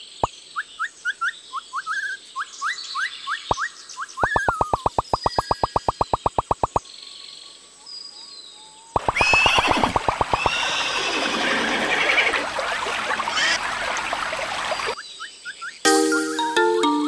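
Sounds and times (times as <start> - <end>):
horse whinny: 9.2 - 12.5.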